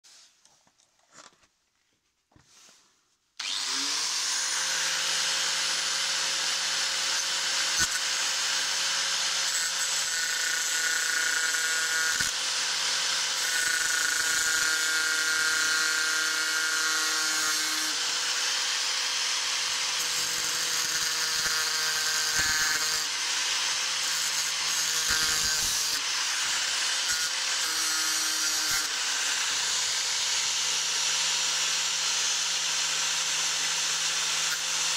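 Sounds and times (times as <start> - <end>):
circular saw whining and cutting: 3.4 - 34.9.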